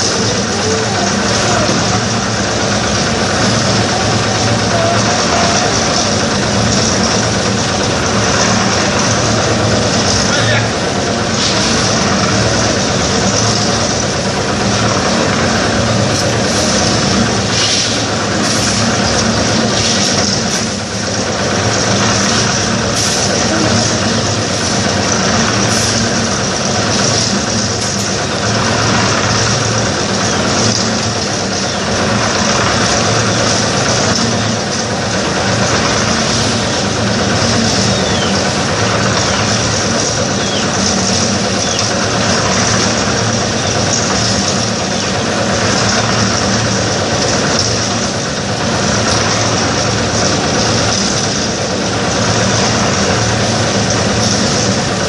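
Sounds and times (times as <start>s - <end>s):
concrete mixer engine running: 0.0s - 55.0s.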